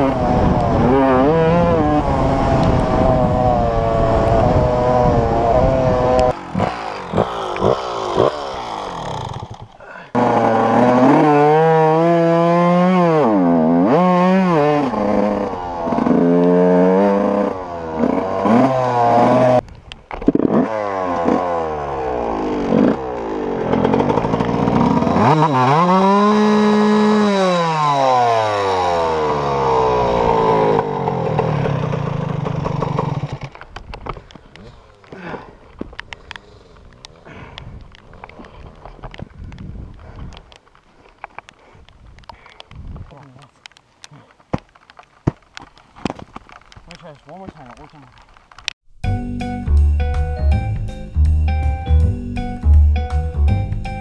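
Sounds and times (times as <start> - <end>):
dirt bike engine revving: 0.0 - 19.6, 20.2 - 33.6.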